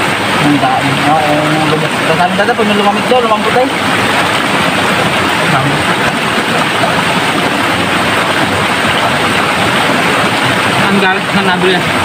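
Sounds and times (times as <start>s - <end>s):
river flowing over boulders: 0.0s - 12.0s.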